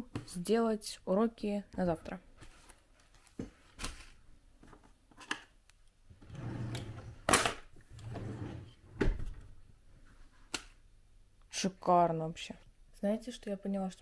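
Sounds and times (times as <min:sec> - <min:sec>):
drawer sliding: 0:06.1 - 0:09.5.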